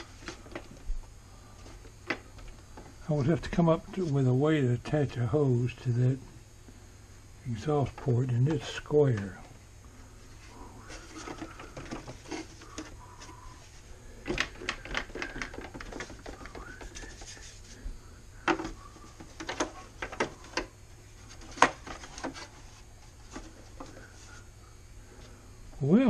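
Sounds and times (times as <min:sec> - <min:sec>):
hard plastic parts clicking and knocking: 0:10.9 - 0:13.3, 0:14.2 - 0:17.3, 0:18.4 - 0:20.7, 0:21.3 - 0:22.5.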